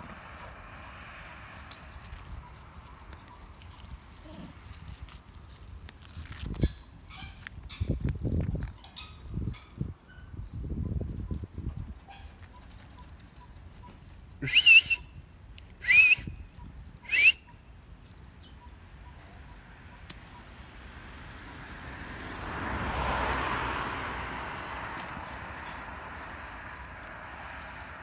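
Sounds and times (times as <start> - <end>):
rising whistles: 14.4 - 15.2, 15.8 - 16.4, 17.0 - 17.5.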